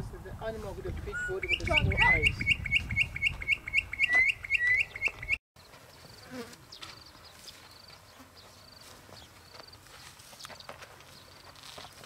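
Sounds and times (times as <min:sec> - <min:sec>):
high-pitched chirping: 0:01.1 - 0:05.4.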